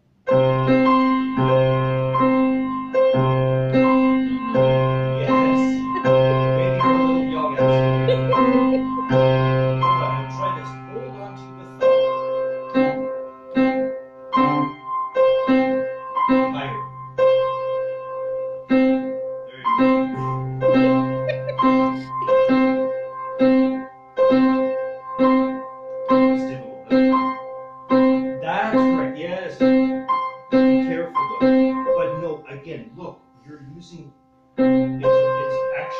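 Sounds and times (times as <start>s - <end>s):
grand piano playing: 0.3s - 35.9s.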